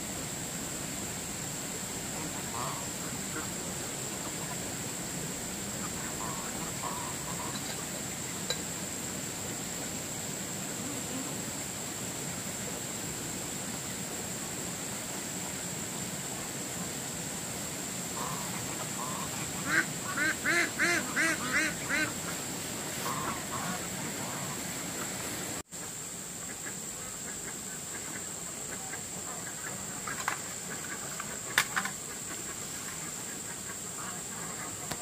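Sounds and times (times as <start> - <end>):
steady background noise: 0.0 - 35.0
ducks quacking: 2.0 - 5.0, 5.6 - 8.6, 18.2 - 35.0.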